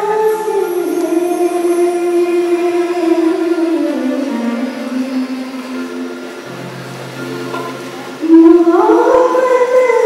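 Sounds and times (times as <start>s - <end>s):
woman singing through microphone: 0.0s - 6.2s, 8.2s - 10.0s.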